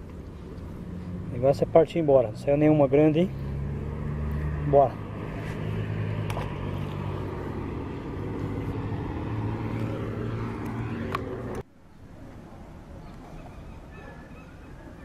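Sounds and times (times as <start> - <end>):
engine humming: 0.0 - 11.7.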